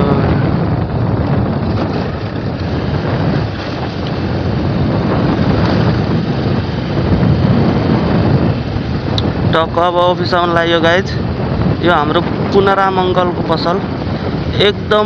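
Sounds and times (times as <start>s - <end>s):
motorcycle engine running: 0.0s - 10.6s
wind rushing over microphone: 0.0s - 15.0s.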